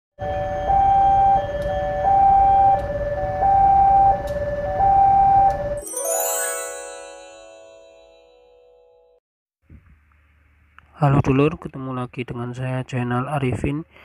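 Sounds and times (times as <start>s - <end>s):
level crossing two-tone alarm: 0.2s - 8.7s
ringing music chime: 5.8s - 9.2s.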